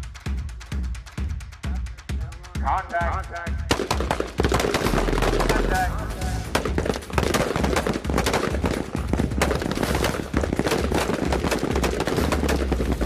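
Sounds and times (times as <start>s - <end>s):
rifles firing: 3.7s - 13.0s.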